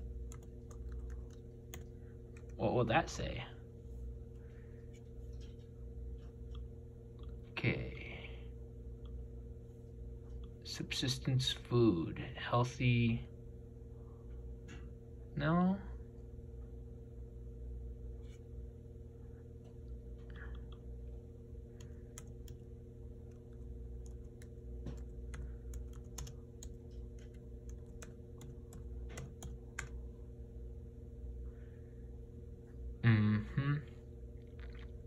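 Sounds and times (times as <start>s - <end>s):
laptop keyboard typing: 0.0s - 2.6s, 21.8s - 30.0s
steady low hum: 0.0s - 35.0s.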